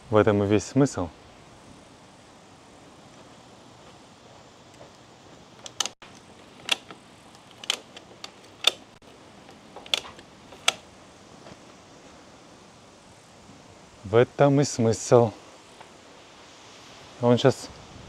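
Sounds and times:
sharp clicks or knocks: 5.6s - 10.8s.

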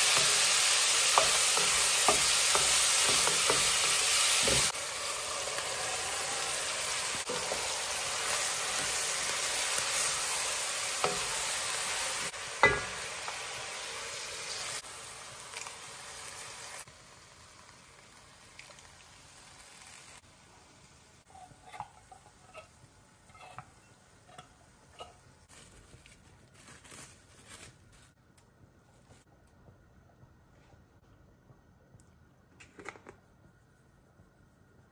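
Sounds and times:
meat and vegetables sizzling: 0.0s - 26.0s.

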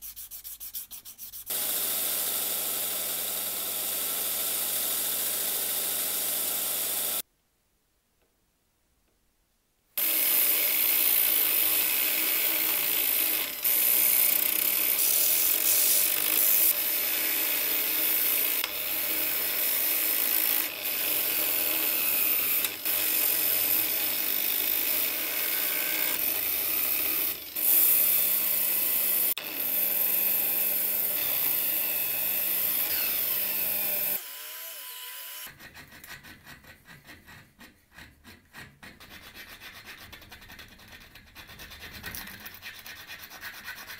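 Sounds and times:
hacksaw scraping steel: 32.6s - 34.2s, 35.4s - 43.9s.

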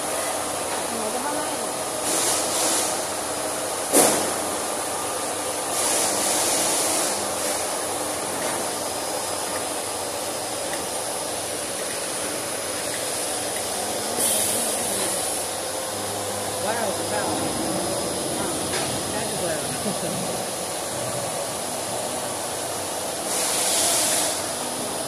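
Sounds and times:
heat press machine noise: 0.0s - 25.0s
pneumatic hiss: 2.0s - 3.1s, 5.7s - 7.7s, 12.8s - 15.7s, 23.2s - 24.6s.

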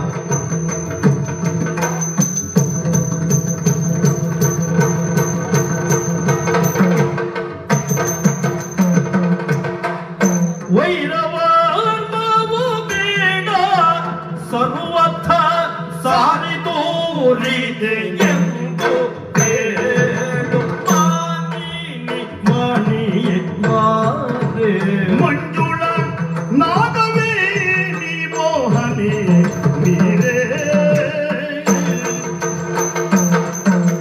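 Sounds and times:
drums playing: 0.0s - 15.5s, 17.8s - 34.0s
man singing ornamented melody: 10.7s - 32.6s.

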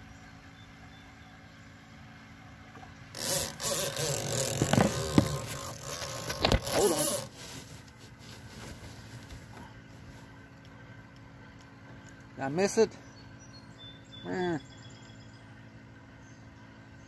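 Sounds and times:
short squeaks: 3.2s - 7.9s
phone rubbing against canoe: 3.2s - 10.4s.

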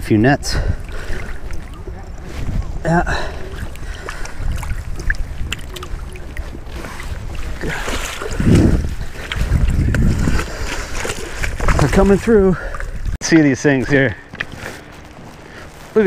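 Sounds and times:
wind on microphone: 0.0s - 13.2s
boots splashing through water: 0.7s - 13.2s.

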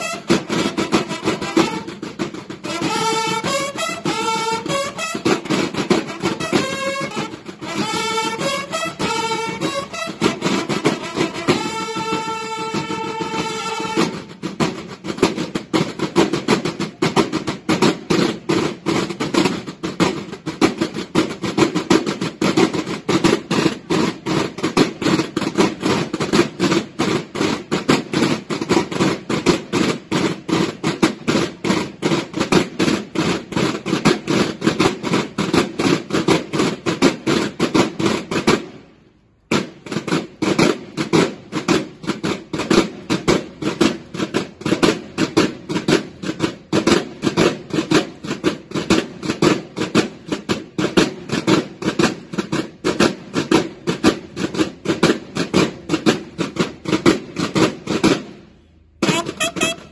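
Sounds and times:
snare drums playing cadence: 0.0s - 38.8s, 59.0s - 59.9s.

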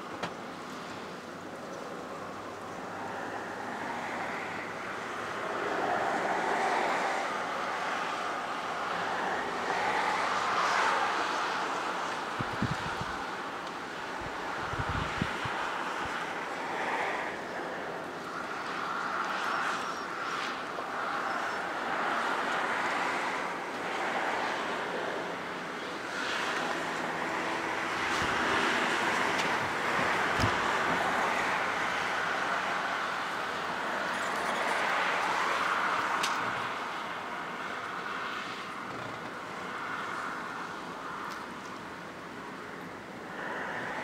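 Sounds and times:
cars passing: 0.0s - 44.0s
wind on microphone: 8.7s - 19.7s, 20.5s - 36.9s.

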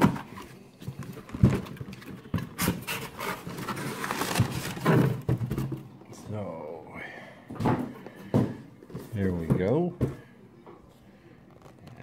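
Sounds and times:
packing paper crinkling: 1.0s - 5.0s.

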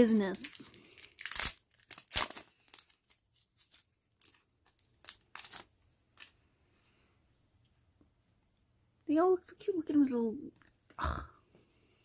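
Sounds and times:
plastic wrapping crinkling: 0.0s - 6.4s.

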